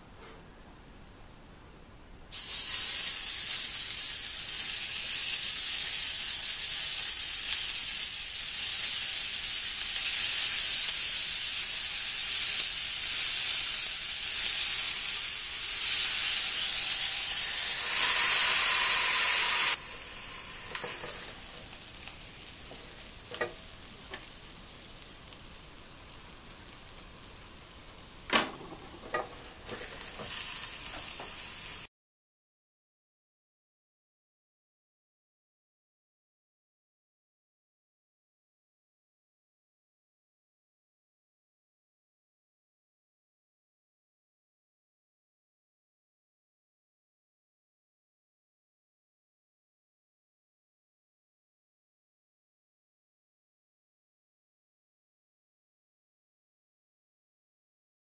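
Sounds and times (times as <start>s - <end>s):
quiet hiss: 0.0s - 31.9s
food sizzling on grill: 2.3s - 31.9s.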